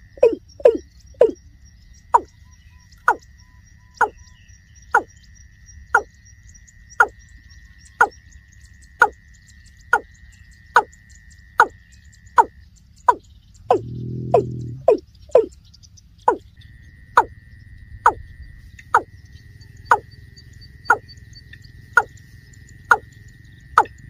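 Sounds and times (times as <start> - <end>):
water cock calling: 13.7 - 15.5.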